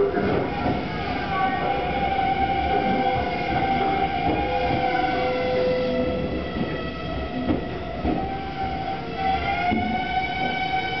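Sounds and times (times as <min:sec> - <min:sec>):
wheel and rail rumble: 0:00.0 - 0:11.0.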